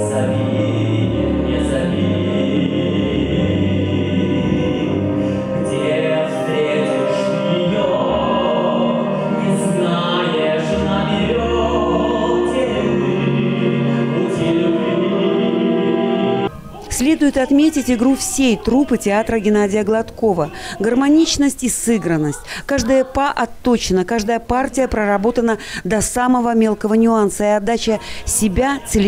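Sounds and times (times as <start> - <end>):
man singing: 0.0 - 16.0
orchestral accompaniment: 0.0 - 16.7.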